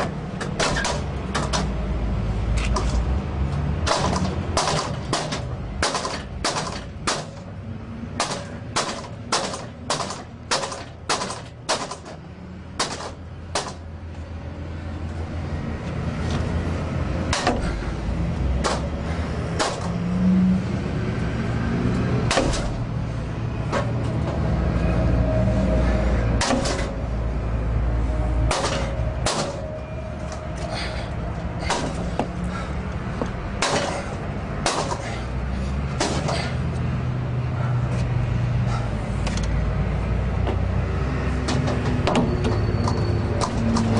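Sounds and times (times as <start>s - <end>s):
pry bar striking metal gate: 0.0s - 1.7s, 3.9s - 7.5s, 8.2s - 12.2s, 22.3s - 22.8s, 26.4s - 27.0s, 28.5s - 29.7s, 33.6s - 35.1s
sharp metal knocks: 0.0s - 1.8s, 3.8s - 7.5s, 8.2s - 12.2s, 12.8s - 13.9s, 17.2s - 17.8s, 18.6s - 20.0s, 22.2s - 22.9s, 26.4s - 27.0s, 28.5s - 29.7s, 31.6s - 32.3s, 33.5s - 35.2s, 36.0s - 36.6s
metal grinding and straining: 0.0s - 14.2s, 15.8s - 43.9s.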